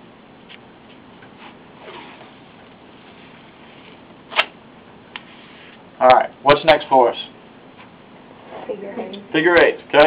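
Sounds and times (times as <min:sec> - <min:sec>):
sharp tape rasp: 0:03.6 - 0:04.6.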